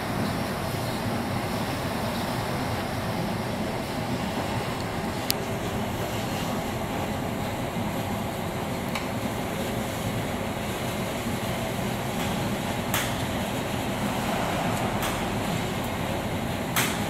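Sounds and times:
lathe running: 13.3s - 17.0s.

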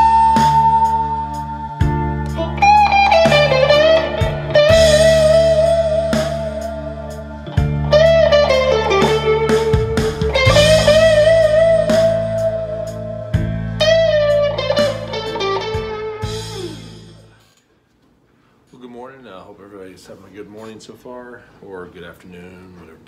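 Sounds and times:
held low guitar notes: 0.0s - 17.4s
bluesy electric guitar lead: 0.0s - 17.5s.

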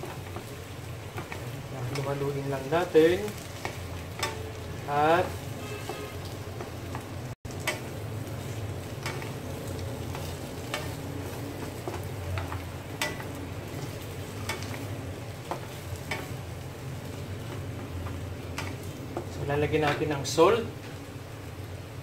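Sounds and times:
food sizzling in a frying pan: 0.0s - 22.0s
spatula scraping and knocking pan: 10.0s - 16.4s.

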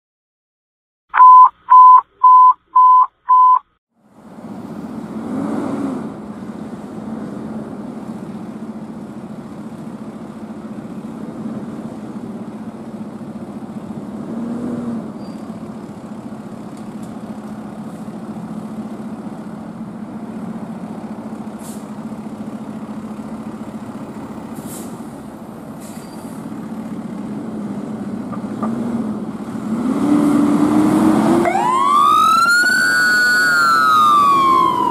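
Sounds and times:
short electronic beeps: 1.1s - 3.7s
fire truck diesel engine: 4.0s - 34.9s.

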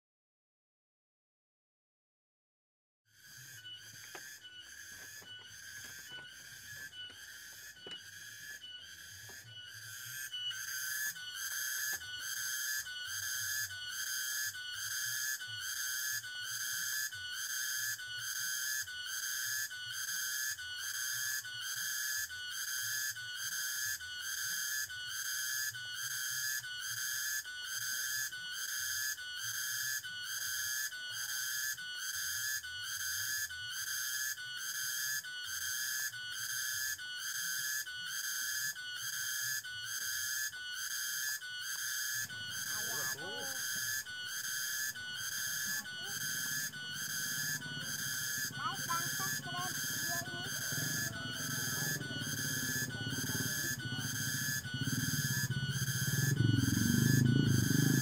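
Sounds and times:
cicadas shrilling: 3.1s - 58.0s.

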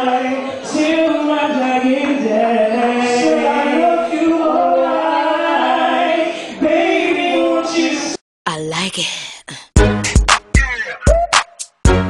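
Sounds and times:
man and woman singing: 0.0s - 8.2s.

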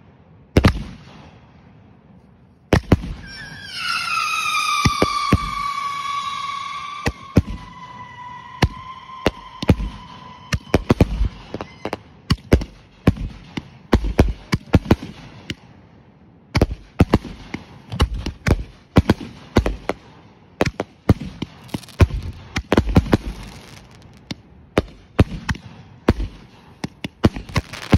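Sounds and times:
fireworks bangs and thuds: 2.7s - 15.6s, 16.6s - 27.9s
firework whistling: 3.0s - 12.3s, 21.4s - 24.4s, 27.3s - 27.9s.

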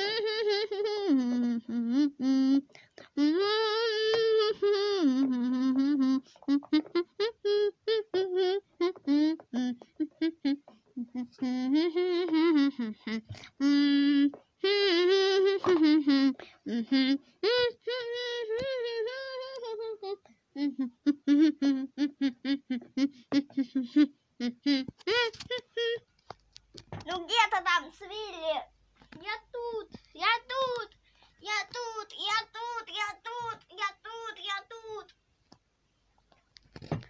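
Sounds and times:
high voice humming: 0.0s - 26.1s, 27.0s - 35.1s.

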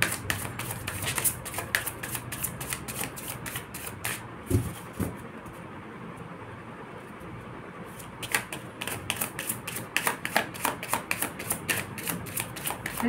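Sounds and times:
cards being shuffled: 0.0s - 4.2s.

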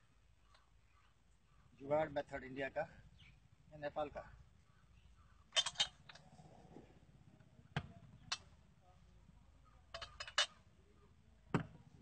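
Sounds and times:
glass bottles clinking: 9.9s - 10.6s.

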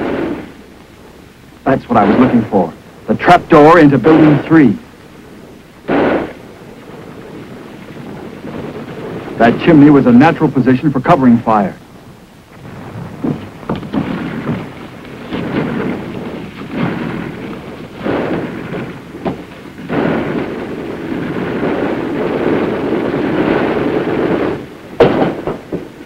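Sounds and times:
small-arms fire: 5.8s - 9.9s, 12.6s - 26.0s
sharp bang: 5.9s - 6.4s, 22.4s - 25.9s.

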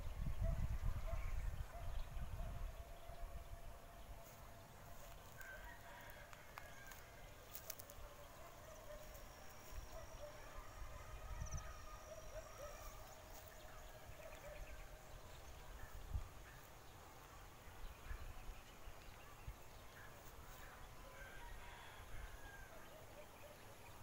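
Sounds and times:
wind rumble on microphone: 0.0s - 4.2s, 10.8s - 12.0s
distant bird and animal calls: 0.4s - 16.8s.

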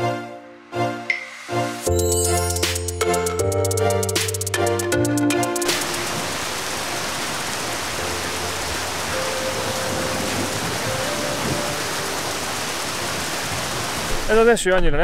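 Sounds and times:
heavy rain falling: 5.4s - 14.5s.

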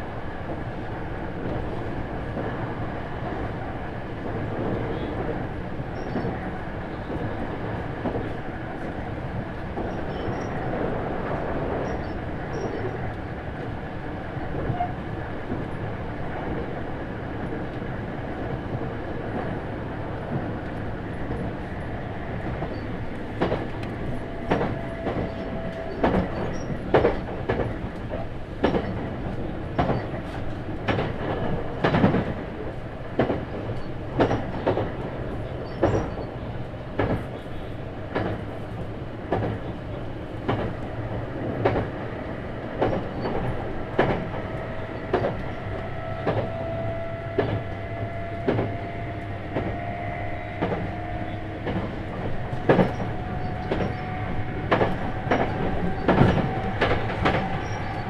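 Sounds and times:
train running rumble: 0.0s - 58.0s
rail-joint clicks: 4.2s - 6.4s, 9.6s - 13.8s, 22.4s - 49.9s, 50.5s - 58.0s.

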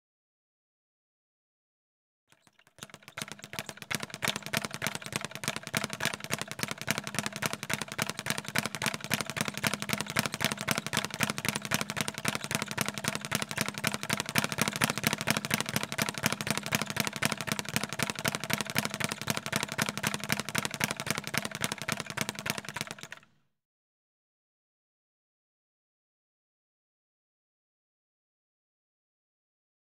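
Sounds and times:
speed bag being punched: 2.8s - 23.2s.

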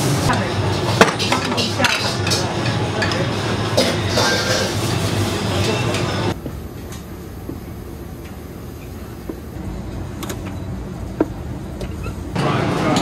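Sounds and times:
low kitchen rumble: 0.0s - 13.0s.

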